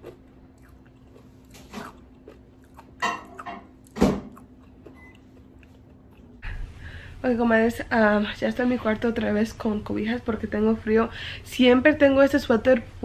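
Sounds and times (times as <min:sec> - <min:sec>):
crunchy food chewing: 0:00.0 - 0:06.4
faint steady hum: 0:00.0 - 0:13.0.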